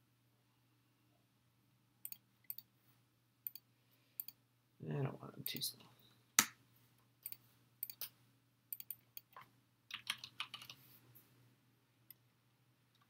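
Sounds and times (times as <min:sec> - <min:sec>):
computer keyboard typing: 0:08.8 - 0:10.8.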